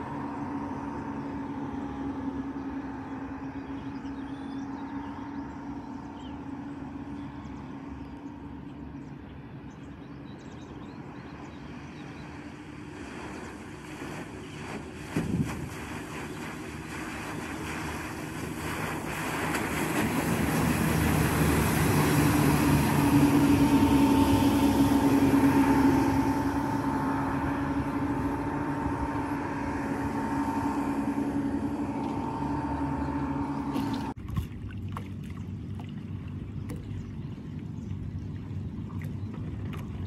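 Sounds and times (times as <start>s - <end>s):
outboard motors running: 0.0s - 40.0s
water lapping: 0.0s - 40.0s
rushing water: 11.5s - 40.0s.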